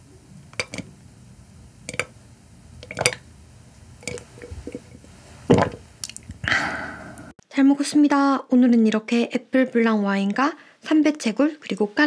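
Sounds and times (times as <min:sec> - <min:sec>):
person gulping wine: 0:04.0 - 0:07.3.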